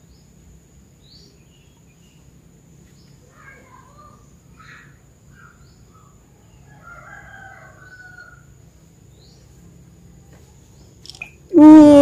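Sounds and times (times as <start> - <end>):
rooster crowing: 6.5 - 8.5.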